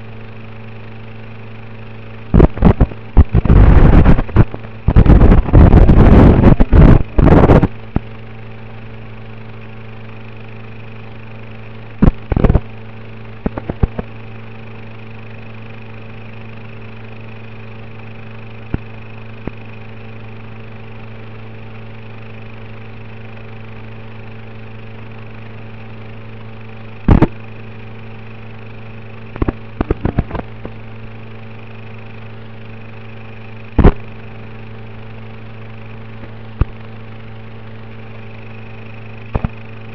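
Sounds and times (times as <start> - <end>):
electrical hum and buzz: 0.0 - 39.9
static crackle bursts: 2.2 - 8.4, 11.8 - 21.0, 27.0 - 37.1, 37.8 - 39.9.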